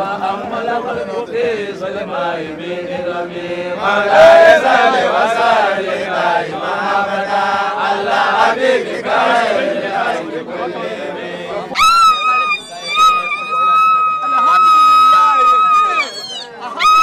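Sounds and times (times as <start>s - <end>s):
men chanting together: 0.0s - 11.8s.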